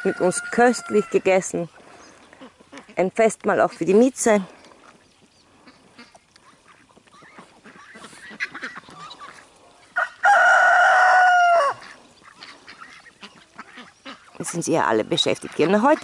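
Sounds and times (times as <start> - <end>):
rooster crowing: 0.0 - 1.2, 10.0 - 11.9.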